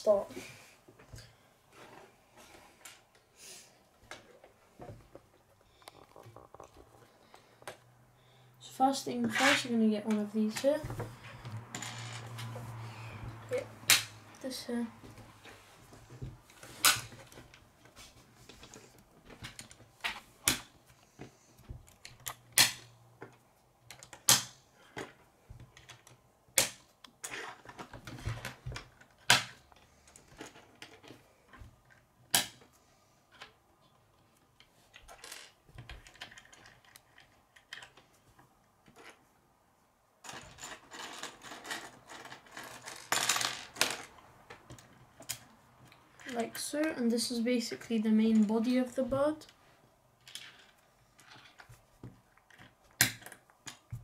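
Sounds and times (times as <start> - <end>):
plastic construction pieces clicking: 34.4 - 38.1, 52.3 - 54.0.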